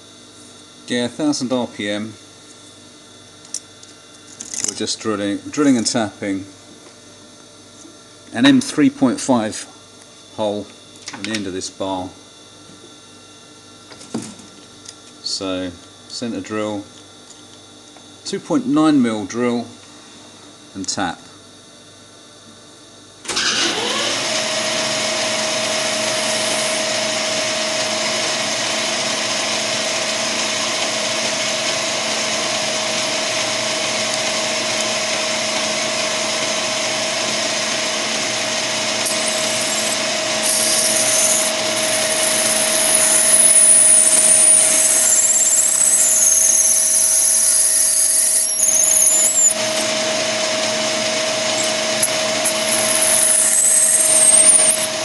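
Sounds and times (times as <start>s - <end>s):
lathe running whine: 23.2s - 55.0s
high squeal of tool cutting brass: 25.7s - 27.0s, 39.0s - 55.0s.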